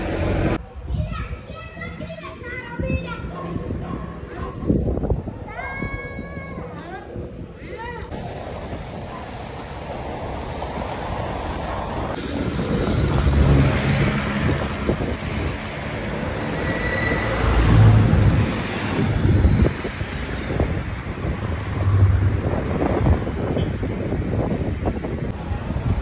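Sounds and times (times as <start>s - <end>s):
vehicles passing close by: 0.0s - 0.8s, 8.1s - 26.0s
steady road noise: 0.0s - 5.5s, 6.6s - 26.0s.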